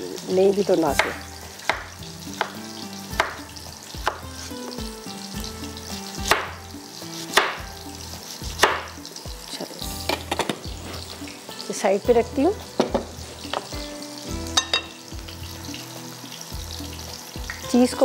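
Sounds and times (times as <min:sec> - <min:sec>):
frying sizzle: 0:00.0 - 0:18.0
knife chopping on wooden board: 0:01.0 - 0:02.6, 0:03.2 - 0:04.3, 0:06.2 - 0:06.6, 0:07.2 - 0:07.7, 0:08.4 - 0:09.0.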